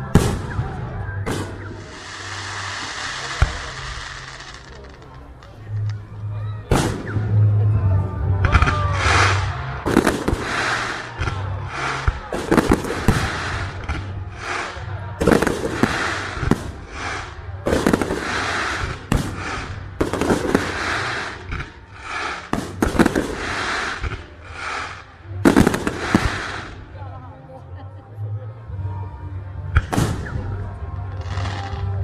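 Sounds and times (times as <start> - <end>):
fireworks exploding: 0.0 - 5.5, 6.7 - 7.5, 8.5 - 26.9
hissing firework tails: 0.2 - 5.0, 8.8 - 26.9.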